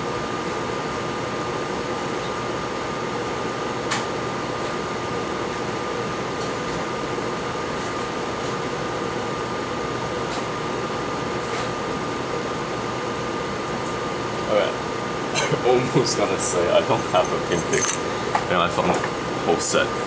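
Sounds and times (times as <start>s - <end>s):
fan whirring hum: 0.0s - 20.0s.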